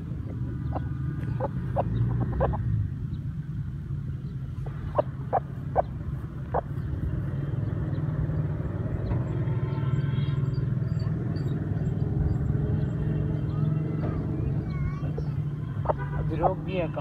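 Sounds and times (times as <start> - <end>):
chickens clucking: 0.2 - 2.7, 4.6 - 6.8, 13.9 - 16.7.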